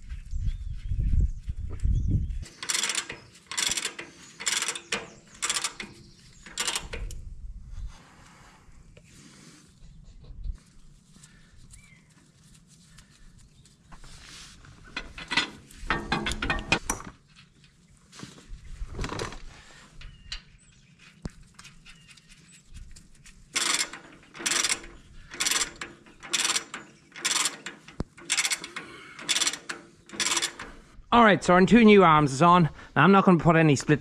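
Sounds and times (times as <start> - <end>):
steel parts clanking and scraping: 2.4 - 7.1, 14.8 - 17.6, 23.5 - 31.0
ratchet wrench clicking: 2.4 - 7.2, 23.6 - 30.8.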